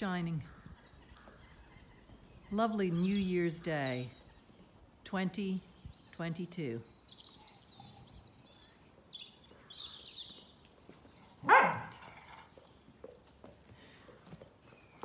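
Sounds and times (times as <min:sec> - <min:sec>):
bird chirping: 0:00.0 - 0:14.0
dog barking: 0:11.4 - 0:12.2.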